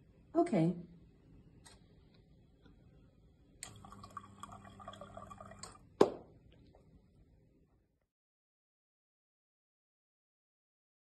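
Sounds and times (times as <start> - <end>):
liquid trickling into glass: 3.6 - 5.9.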